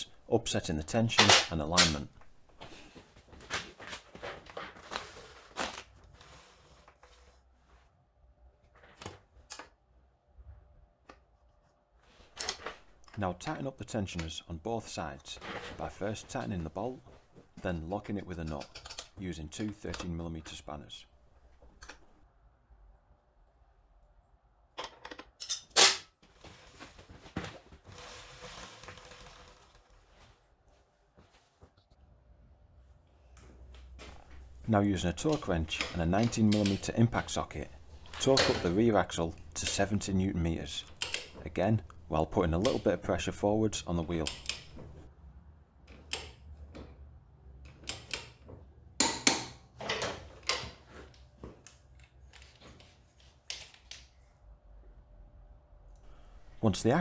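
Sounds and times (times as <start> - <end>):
spanners clicking and knocking: 18.4 - 20.1.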